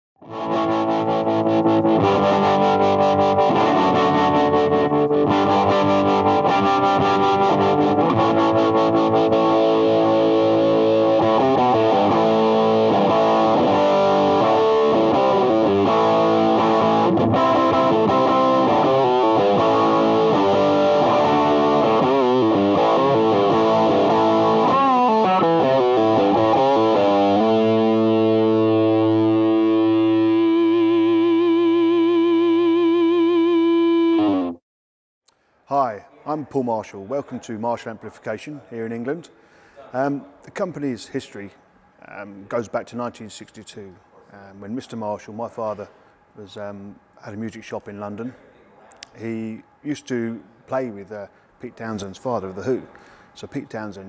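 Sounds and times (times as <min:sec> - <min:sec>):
distorted electric guitar rock riff: 0:00.2 - 0:34.6.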